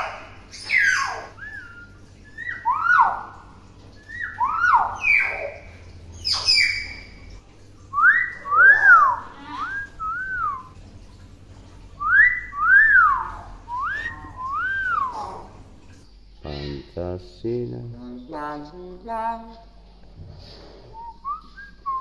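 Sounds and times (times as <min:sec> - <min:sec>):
myna bird whistling a tune: 0:00.6 - 0:03.1, 0:07.9 - 0:10.7, 0:12.0 - 0:15.2.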